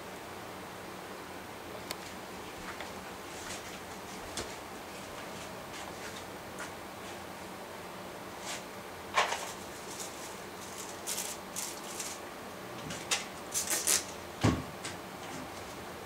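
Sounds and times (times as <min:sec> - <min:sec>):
soft rustles of hair rods: 0:09.2 - 0:12.2.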